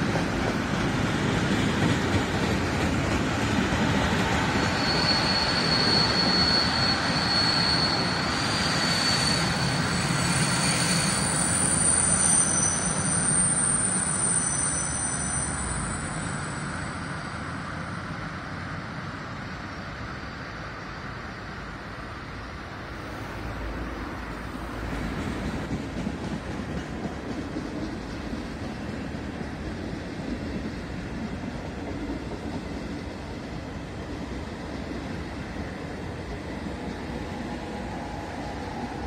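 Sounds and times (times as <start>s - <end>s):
freight train rolling on rails: 0.0s - 39.0s
high-pitched squeals: 4.4s - 17.9s.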